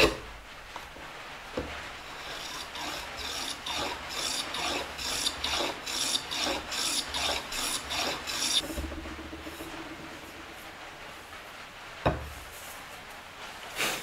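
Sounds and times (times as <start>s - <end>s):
hand plane rasping on wood: 2.1s - 8.6s.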